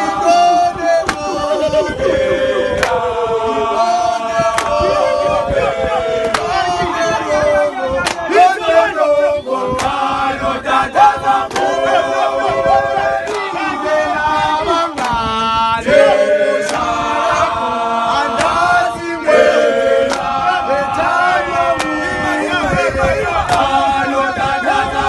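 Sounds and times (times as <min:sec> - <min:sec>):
men singing a cappella: 0:00.0 - 0:25.0
hand claps: 0:01.0 - 0:01.3, 0:04.5 - 0:04.8, 0:06.2 - 0:06.6, 0:08.0 - 0:08.3, 0:09.8 - 0:10.0, 0:11.5 - 0:11.7, 0:13.2 - 0:13.5, 0:14.9 - 0:15.2, 0:16.6 - 0:16.8, 0:18.4 - 0:18.6, 0:20.0 - 0:20.3.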